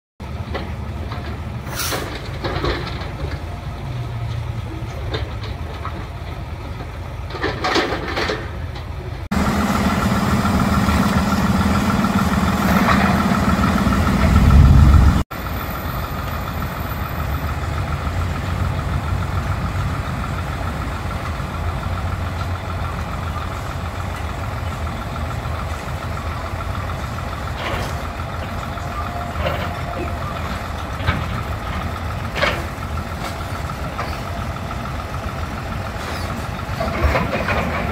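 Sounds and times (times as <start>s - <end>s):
heavy diesel machinery running: 0.2s - 37.9s
deep rumble: 9.3s - 15.3s.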